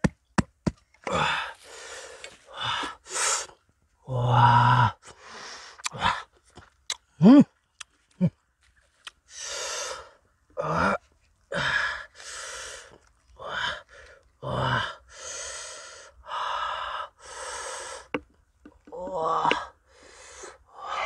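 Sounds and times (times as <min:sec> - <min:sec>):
man grunting and moaning: 0:01.0 - 0:01.6, 0:04.0 - 0:05.1, 0:05.8 - 0:06.3, 0:07.1 - 0:07.6, 0:08.2 - 0:08.4, 0:10.6 - 0:12.0, 0:14.4 - 0:15.0, 0:18.8 - 0:19.8
man gasping and exhaling: 0:01.0 - 0:06.3, 0:09.3 - 0:21.0.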